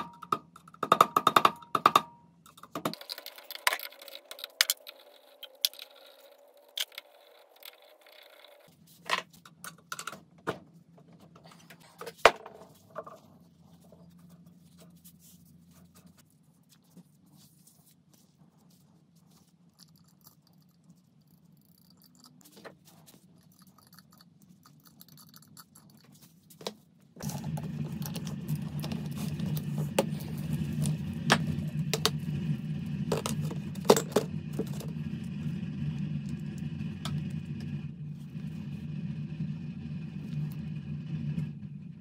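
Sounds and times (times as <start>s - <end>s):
faint hum: 0.0s - 42.0s
machine running with low drone: 27.2s - 42.0s.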